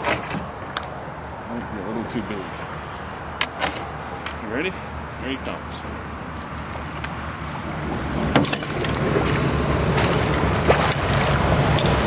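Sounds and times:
fish splashing in water: 6.4 - 12.0.

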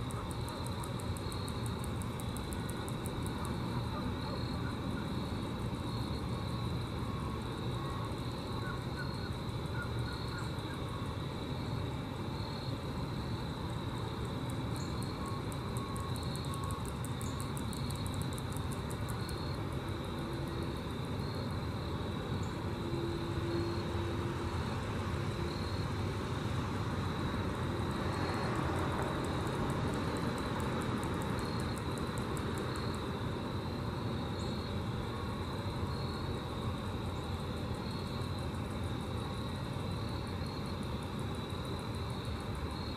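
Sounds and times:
grasshoppers stridulating: 0.0 - 42.9.

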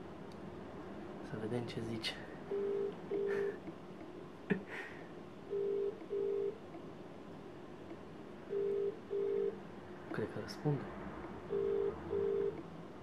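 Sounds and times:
telephone ringback tone: 5.5 - 6.6, 8.5 - 9.6, 11.5 - 12.6.

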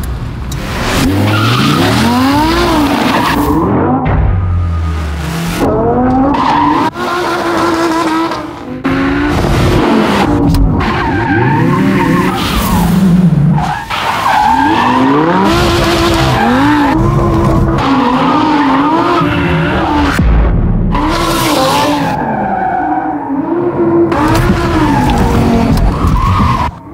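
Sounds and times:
car engine revving: 0.5 - 26.8
tyres squealing on pavement: 13.6 - 20.0.

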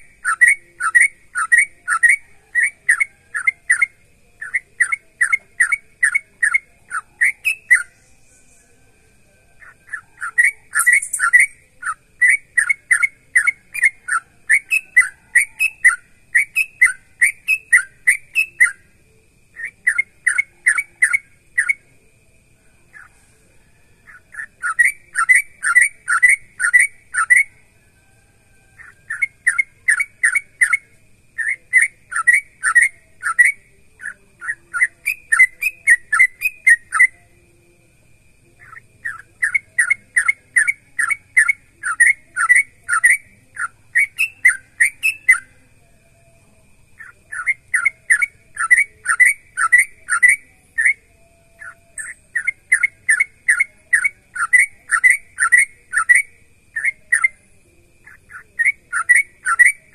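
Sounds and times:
bulbul singing bubbling whistles: 9.9 - 18.8.

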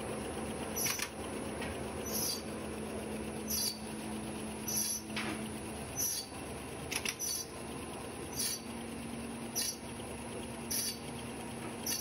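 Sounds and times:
folder gluer machine hum: 0.0 - 12.0
high hissing squeak: 2.1 - 2.4, 3.5 - 3.8, 4.7 - 5.0, 6.0 - 6.3, 8.4 - 8.7, 9.6 - 9.8, 10.7 - 11.0.

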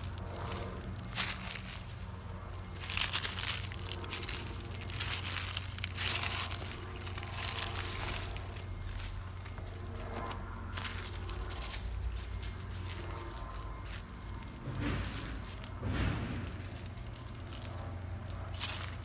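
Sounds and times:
footsteps crunching dry leaves: 0.0 - 19.0.

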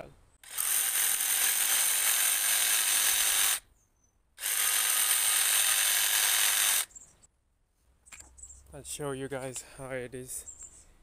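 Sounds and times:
jigsaw sawing wood: 0.4 - 3.6, 4.4 - 6.9.

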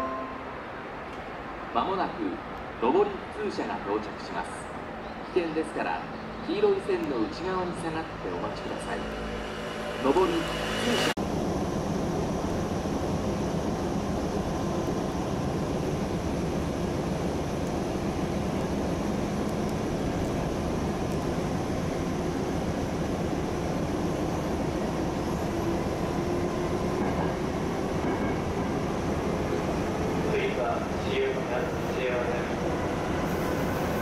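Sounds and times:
train running on rails: 0.0 - 34.0
low whine rising in pitch: 8.2 - 11.9.

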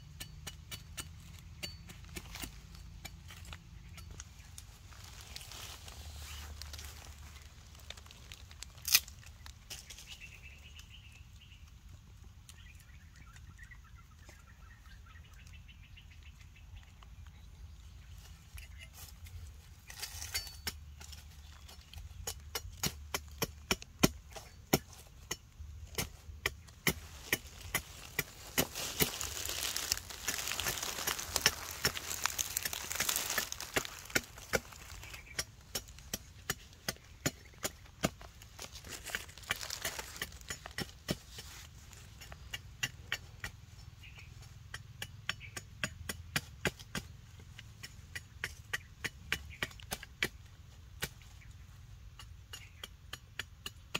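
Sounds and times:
machete chopping wooden stick: 22.2 - 38.3, 44.7 - 47.2.

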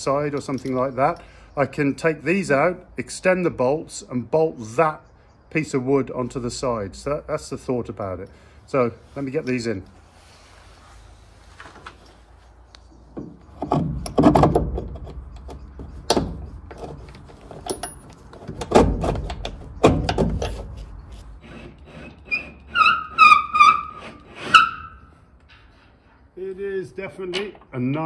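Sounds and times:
bolts knocking and scraping on wood: 0.0 - 2.7, 11.7 - 26.0, 27.2 - 28.0
bolt squeaking in tight hole: 13.1 - 25.8.

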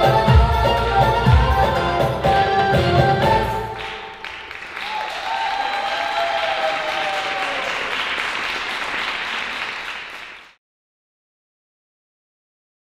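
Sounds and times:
audience applauding: 3.7 - 10.6.

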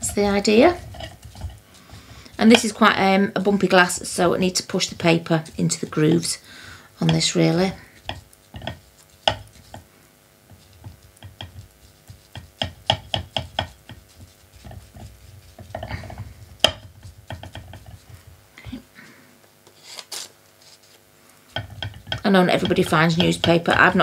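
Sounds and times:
paintbrush tapping on glass: 8.0 - 9.8, 10.8 - 15.8, 16.6 - 17.8, 21.6 - 23.7.

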